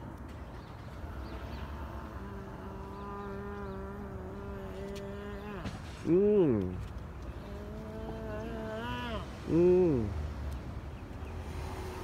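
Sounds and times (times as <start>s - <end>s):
outdoor background rumble: 0.0s - 12.0s
man humming low drone: 1.6s - 6.6s, 7.4s - 10.2s.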